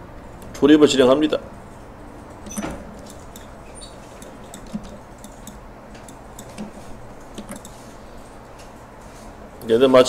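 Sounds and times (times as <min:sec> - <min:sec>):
low room hum: 0:00.0 - 0:10.0
computer mouse clicking: 0:02.2 - 0:07.9.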